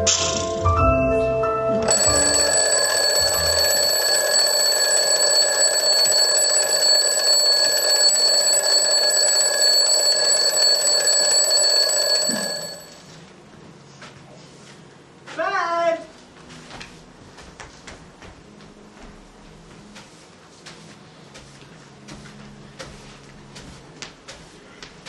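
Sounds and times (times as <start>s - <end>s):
alarm clock bell ringing: 1.9s - 13.0s.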